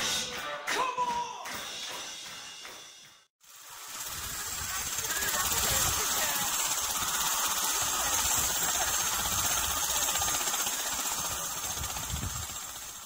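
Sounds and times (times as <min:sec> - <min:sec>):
helicopter turbine hissing: 0:03.4 - 0:13.0.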